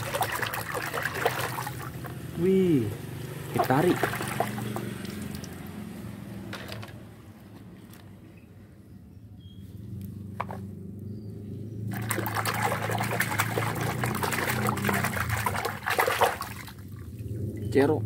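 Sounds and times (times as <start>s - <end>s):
water sloshing and splashing: 0.0s - 5.9s, 11.9s - 17.6s.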